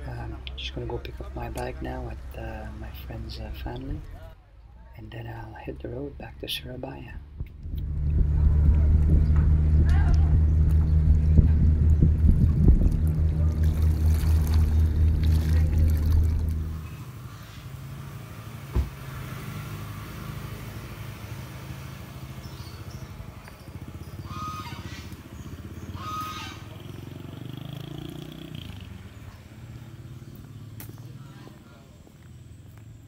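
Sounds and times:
boat engine throbbing: 7.4s - 18.1s.

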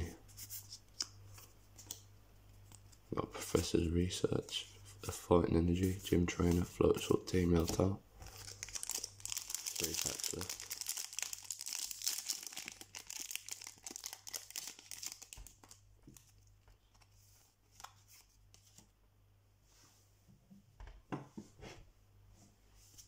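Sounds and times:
foil wrapper tearing and crinkling: 8.3s - 15.8s.

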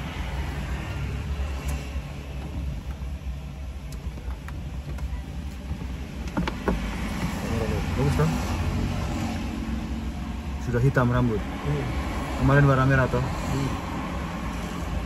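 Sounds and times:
car cabin rumble: 0.0s - 8.3s.

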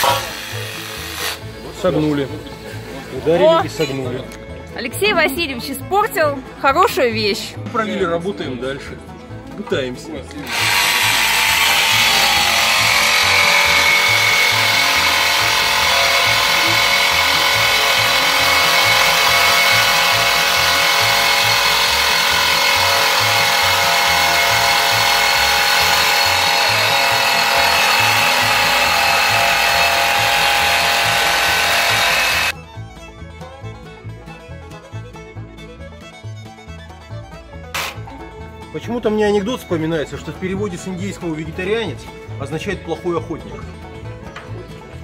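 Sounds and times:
jigsaw cutting metal: 0.0s - 1.5s, 10.4s - 32.6s, 37.7s - 38.1s.

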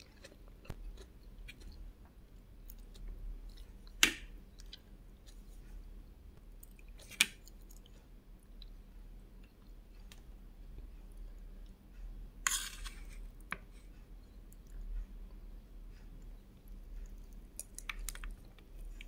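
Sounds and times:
soft chewing: 0.0s - 19.0s
spoon scraping plate: 12.5s - 13.2s.

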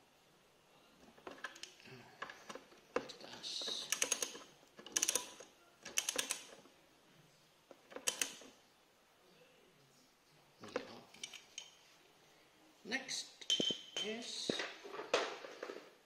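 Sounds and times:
ratchet wrench clicking: 3.8s - 5.4s.

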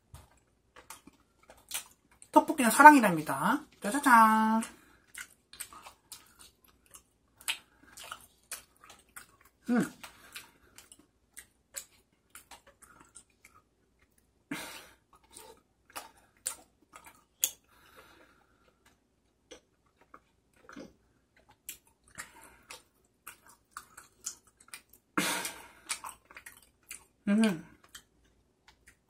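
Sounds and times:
chewing and wet mouth noises: 0.0s - 29.0s.

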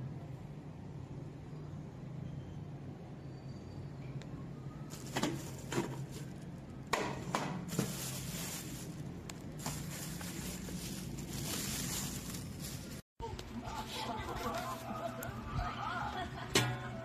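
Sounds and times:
plastic wrapping crinkling: 4.9s - 6.8s, 7.6s - 13.5s, 14.2s - 15.4s.

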